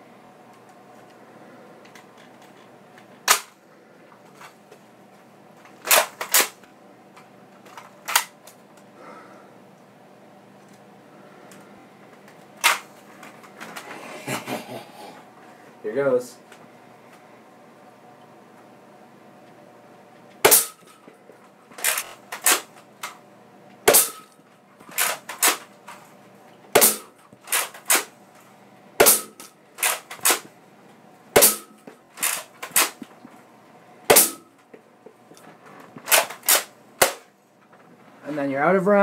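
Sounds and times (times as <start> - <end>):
toy blaster firing darts: 20.4 - 21.0, 21.8 - 22.7, 23.9 - 25.6, 26.8 - 28.1, 29.0 - 30.5, 31.4 - 33.0, 34.1 - 34.5.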